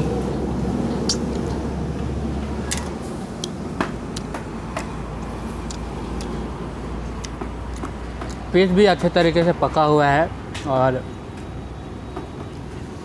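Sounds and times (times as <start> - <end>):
man chewing and lip smacking: 1.0 - 1.6, 3.4 - 6.4.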